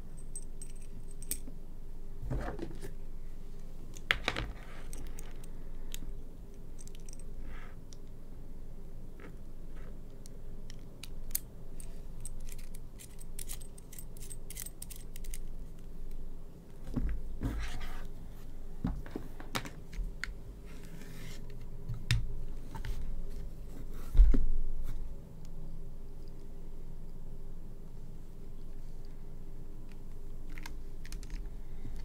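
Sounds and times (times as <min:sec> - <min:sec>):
coiled cable rubbing on desk mat: 0:17.4 - 0:18.5, 0:20.6 - 0:21.5.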